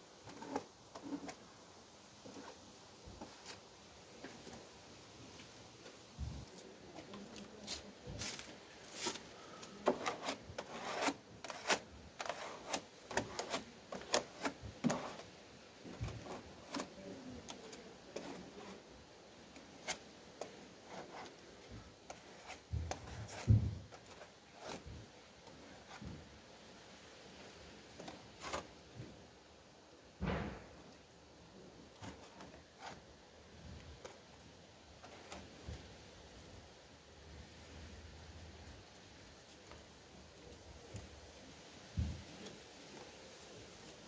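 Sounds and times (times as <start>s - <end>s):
spreader scraping body filler: 8.9s - 15.3s.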